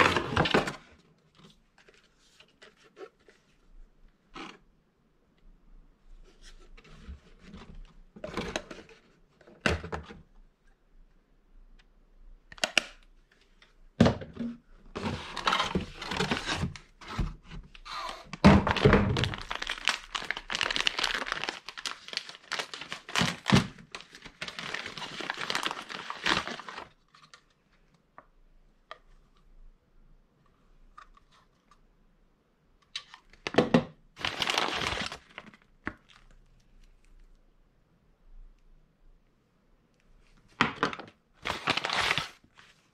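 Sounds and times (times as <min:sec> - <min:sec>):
paper bag crinkling and tearing: 0:18.0 - 0:26.9, 0:34.2 - 0:35.6, 0:41.4 - 0:42.4.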